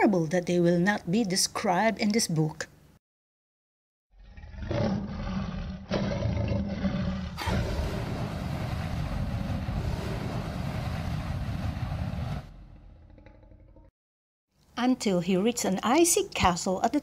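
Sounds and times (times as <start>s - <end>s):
long harsh monster roar: 4.2s - 13.6s
monster growling roars: 4.2s - 13.9s.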